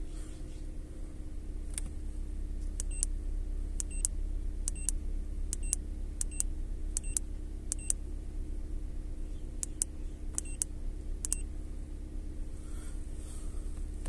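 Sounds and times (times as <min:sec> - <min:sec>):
car engine idling: 0:00.0 - 0:14.0
scan tool key-press beeps: 0:03.8 - 0:04.1, 0:04.7 - 0:05.0, 0:05.6 - 0:08.0, 0:09.6 - 0:10.6.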